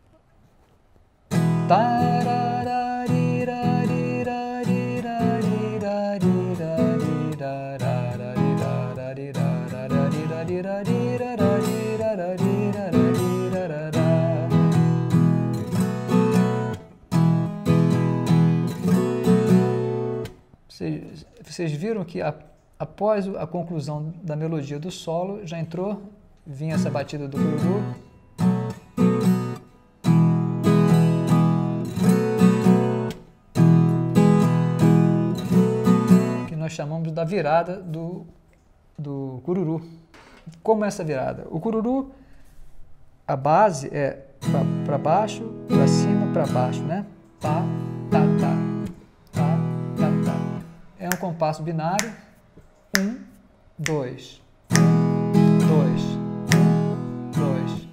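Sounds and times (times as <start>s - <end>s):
plucked guitar melody: 1.3s - 20.4s, 26.7s - 36.5s, 44.4s - 51.4s, 54.6s - 57.9s
strummed guitar chords: 1.3s - 20.4s, 26.7s - 36.5s, 44.4s - 51.4s, 54.6s - 57.9s.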